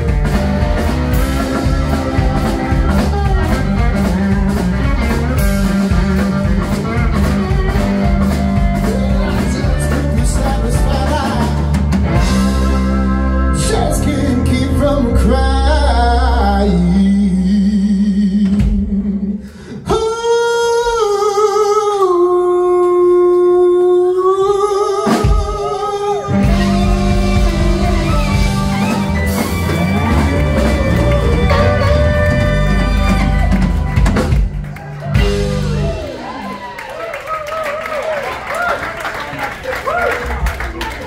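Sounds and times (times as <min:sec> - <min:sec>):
live blues band playing: 0:00.0 - 0:41.0
man singing lead vocal: 0:08.9 - 0:12.3, 0:13.4 - 0:27.7.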